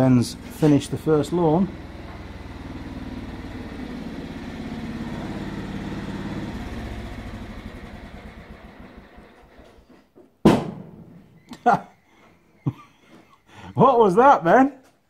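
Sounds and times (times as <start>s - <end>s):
engine backfire bang: 0.0s - 9.8s, 10.4s - 11.5s
lawnmower engine running: 0.0s - 10.0s.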